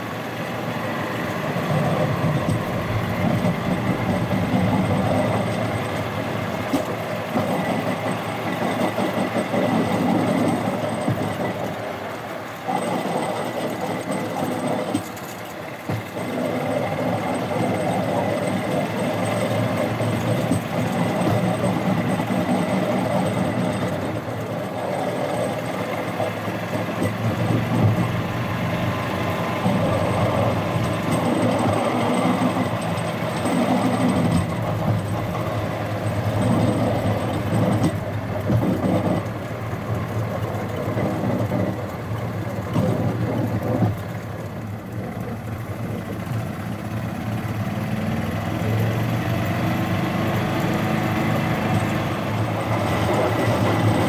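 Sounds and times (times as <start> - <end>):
golf cart engine running: 0.0 - 54.0
wheels rumbling on rails: 0.0 - 54.0.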